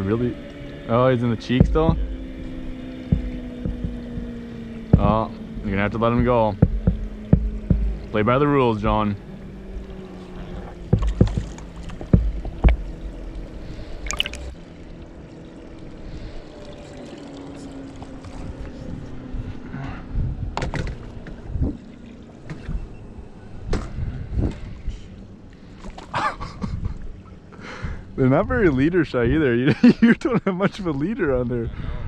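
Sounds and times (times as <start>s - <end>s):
faint steady hum: 0.0s - 29.2s
water trickling: 0.4s - 19.3s
fishing gear knocking on boat: 1.6s - 2.2s, 3.0s - 5.4s, 6.1s - 8.2s, 10.8s - 13.4s.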